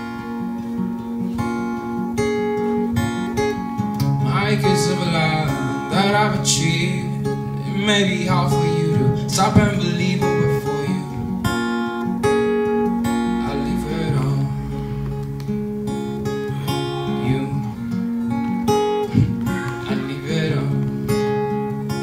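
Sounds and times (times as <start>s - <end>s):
acoustic guitar chords: 0.0s - 22.0s
young man singing: 4.2s - 11.5s, 13.3s - 15.1s, 16.5s - 18.1s, 19.1s - 22.0s.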